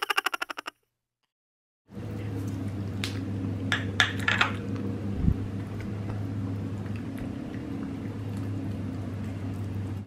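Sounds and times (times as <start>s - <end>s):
low electrical hum: 1.9s - 10.0s
cats eating wet food: 4.6s - 10.0s.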